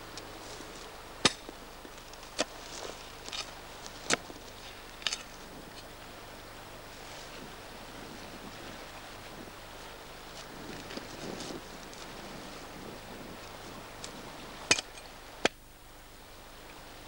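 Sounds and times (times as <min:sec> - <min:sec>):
steady hiss: 0:00.0 - 0:17.0
footsteps crunching on debris: 0:00.4 - 0:05.4.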